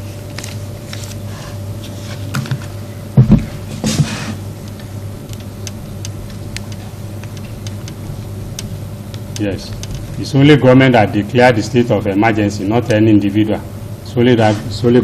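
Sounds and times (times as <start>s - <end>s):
electrical hum: 0.0s - 15.0s
loud knocks: 3.2s - 4.2s.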